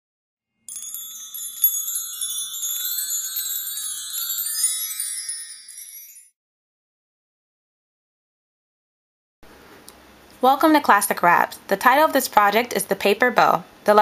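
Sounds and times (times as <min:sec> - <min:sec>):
high-pitched twinkling chimes and bells: 0:00.6 - 0:06.4.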